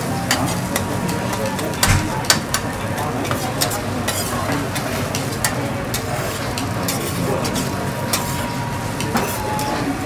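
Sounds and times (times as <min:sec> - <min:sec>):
metal spatulas scraping griddle: 0:05.4 - 0:08.5.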